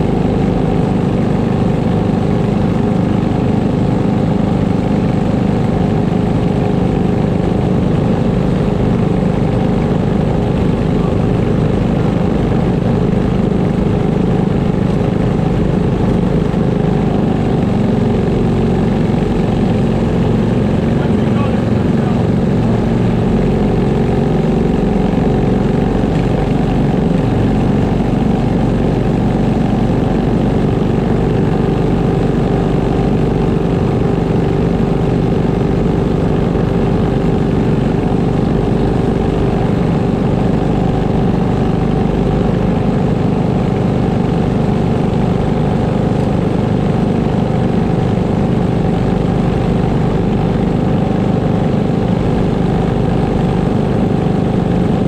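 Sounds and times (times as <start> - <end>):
go-kart engines idling: 0.0 - 55.0.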